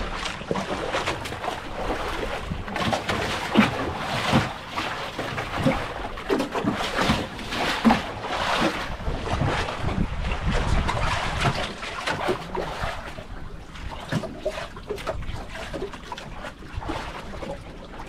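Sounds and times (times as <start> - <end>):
water sloshing around boat: 0.0 - 18.0.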